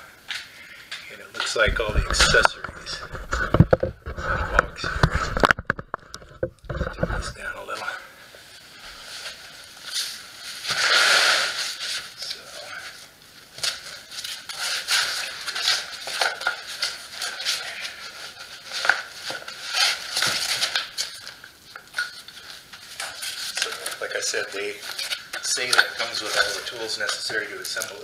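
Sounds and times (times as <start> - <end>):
foam rustling and scraping: 8.4 - 21.2, 22.2 - 28.0.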